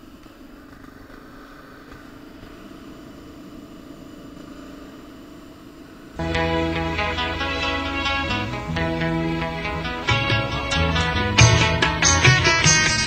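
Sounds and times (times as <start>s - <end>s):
motorcycle engine drone: 5.3s - 13.0s
loud guitar music: 6.2s - 13.0s.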